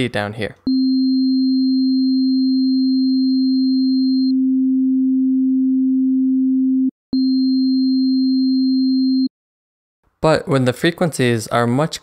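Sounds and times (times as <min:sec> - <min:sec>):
steady low sine tone: 0:00.7 - 0:09.3.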